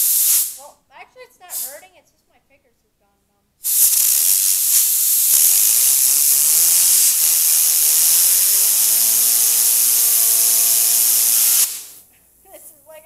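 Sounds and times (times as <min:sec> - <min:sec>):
compressed air hissing: 0:00.0 - 0:00.6, 0:01.5 - 0:01.8, 0:03.6 - 0:12.1
fidget spinner whirring: 0:03.7 - 0:12.0.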